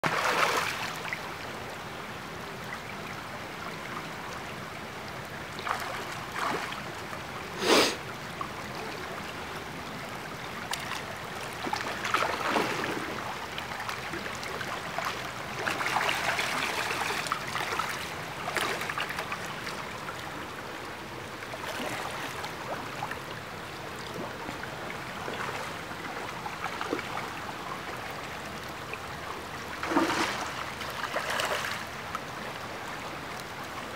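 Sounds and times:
creek running over gravel: 0:00.0 - 0:01.3, 0:10.2 - 0:33.9
water splashes: 0:00.0 - 0:01.3, 0:05.6 - 0:08.1, 0:10.6 - 0:20.3, 0:21.4 - 0:23.4, 0:24.0 - 0:33.9.

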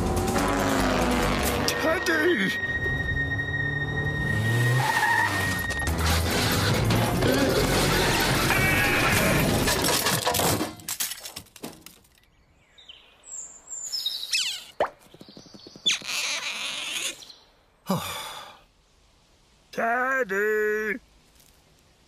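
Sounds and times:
cartoon car skid: 0:04.3 - 0:06.6.

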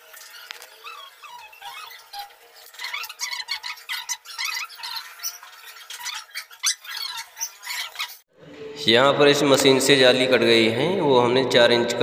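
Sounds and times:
stone scraping and squeaking: 0:00.0 - 0:08.3.

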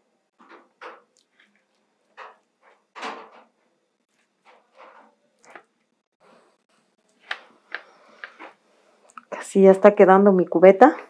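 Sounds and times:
hot wire scraping plastic: 0:04.2 - 0:05.7.

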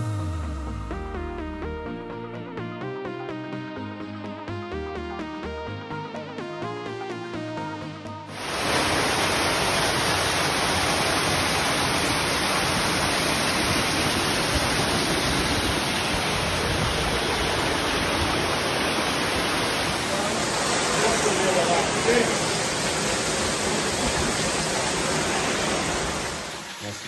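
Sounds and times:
waterfall rushing over rocks: 0:08.3 - 0:27.0.

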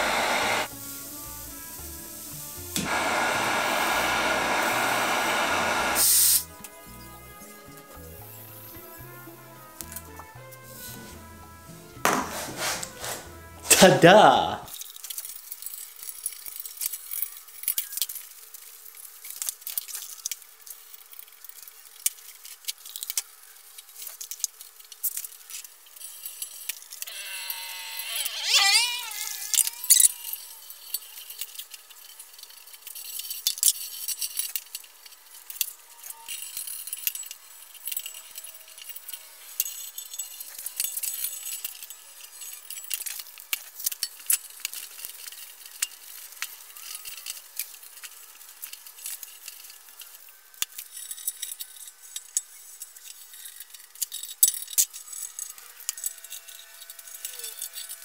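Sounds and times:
rag wiping metal: 0:12.1 - 0:13.9
wavering squeak: 0:27.1 - 0:31.0
clicks and clinks on metal frame: 0:29.5 - 0:58.0.

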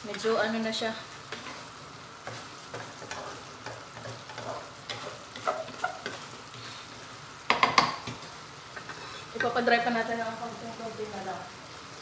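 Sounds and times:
sauce sizzling: 0:00.0 - 0:12.0
spatula scraping a wok: 0:01.2 - 0:07.2, 0:08.0 - 0:09.5.

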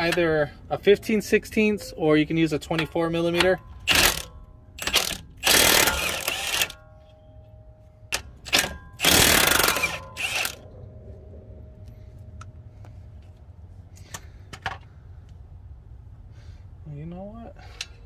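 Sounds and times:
impact wrench hammering: 0:02.7 - 0:06.9, 0:08.1 - 0:10.6.

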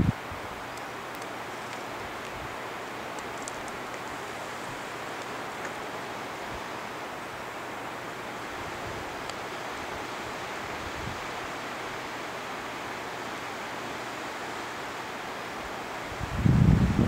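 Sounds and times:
wind buffeting microphone: 0:00.0 - 0:00.5, 0:16.1 - 0:17.0
running water rushing: 0:00.0 - 0:17.0.

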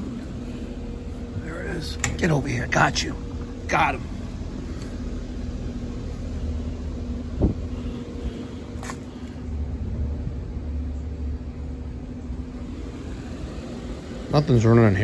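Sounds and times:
equipment humming: 0:00.0 - 0:15.0
low rumble: 0:09.4 - 0:14.3.

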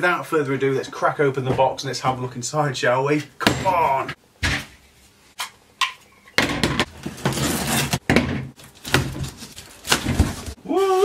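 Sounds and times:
cardboard scraping and rustling: 0:06.6 - 0:10.6.

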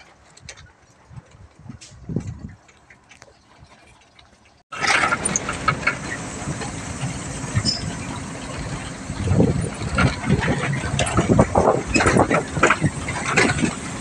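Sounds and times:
knocks and rattles: 0:01.6 - 0:14.0
truck engine running rough: 0:04.7 - 0:14.0.

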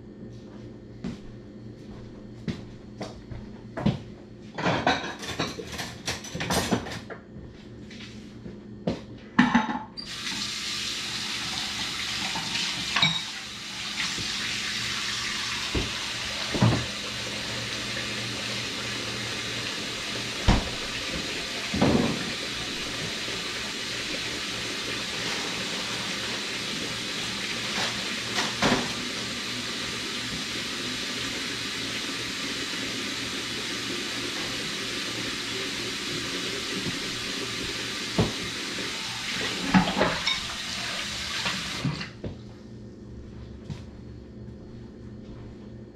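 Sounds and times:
tap water running: 0:10.0 - 0:42.3.

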